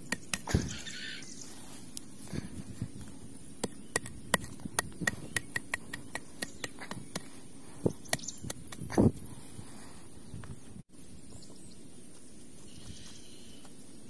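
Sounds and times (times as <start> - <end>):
sharp irregular clicks: 3.0 - 7.3.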